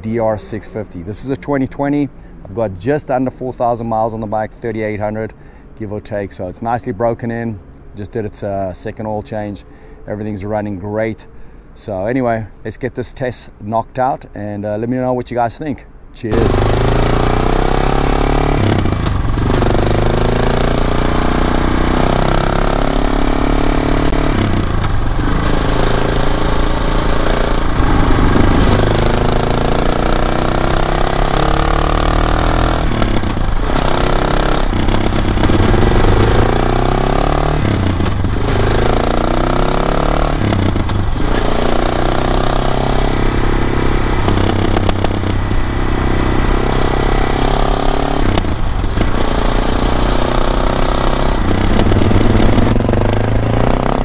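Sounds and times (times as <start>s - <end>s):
motorcycle engine on the road: 16.2s - 54.0s.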